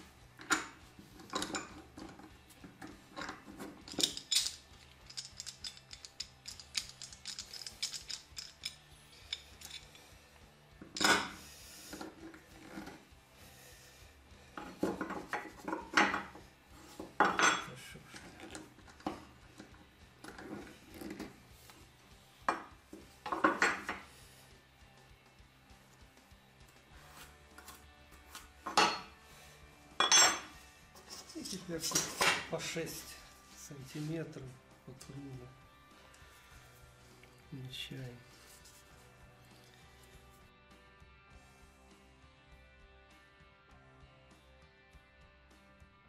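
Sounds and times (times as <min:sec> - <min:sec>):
metal clamps clinking on wood: 0:00.4 - 0:10.1, 0:10.8 - 0:11.4, 0:14.6 - 0:21.4, 0:22.4 - 0:24.1, 0:28.6 - 0:29.2, 0:30.0 - 0:33.2.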